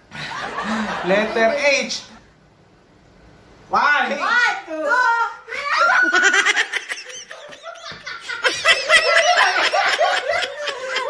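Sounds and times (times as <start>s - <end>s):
group of people laughing: 0.1s - 1.6s, 5.7s - 11.0s.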